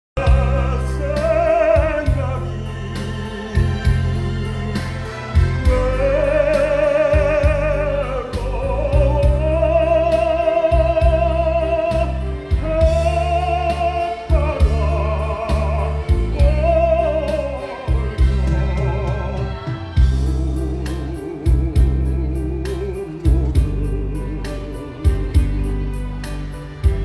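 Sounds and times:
man singing through a microphone: 0.2s - 25.6s
bass and drum beat: 0.2s - 27.0s
instrumental accompaniment: 0.2s - 27.0s.

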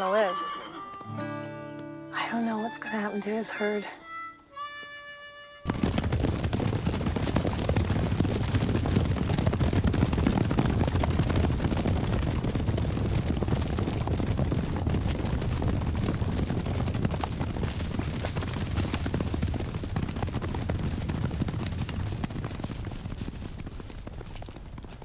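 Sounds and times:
horses galloping: 5.6s - 25.0s.

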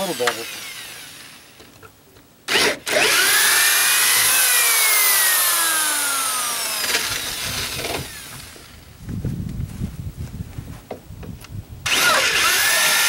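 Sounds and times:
electric drill boring into wood: 0.0s - 1.6s, 2.5s - 8.9s, 11.9s - 13.0s.

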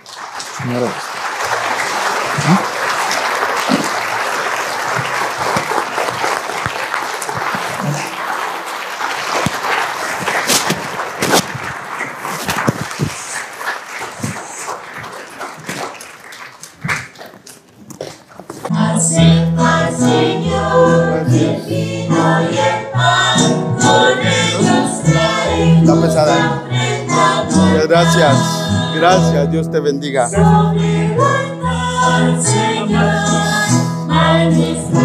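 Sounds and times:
congregation applauding: 0.0s - 18.7s.

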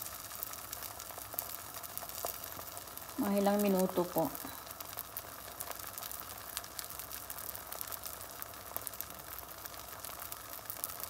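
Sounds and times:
eggs sizzling in a pan: 0.0s - 11.0s.

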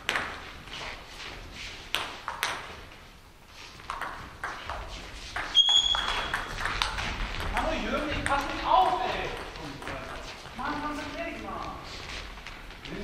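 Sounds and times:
short high squeak: 5.5s - 6.4s.

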